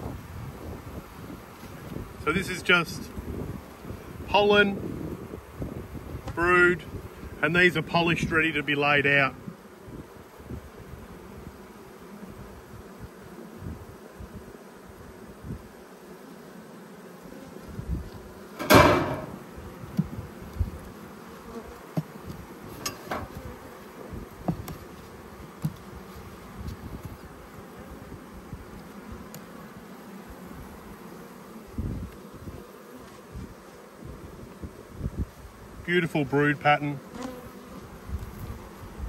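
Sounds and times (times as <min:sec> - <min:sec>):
bees buzzing: 0:00.0 - 0:39.0
wooden hive frames knocking: 0:18.5 - 0:20.8, 0:21.5 - 0:27.2.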